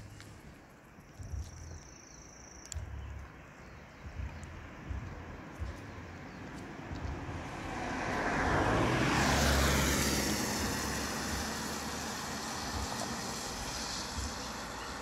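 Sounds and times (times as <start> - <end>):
vehicle passing on wet road: 5.2 - 15.0.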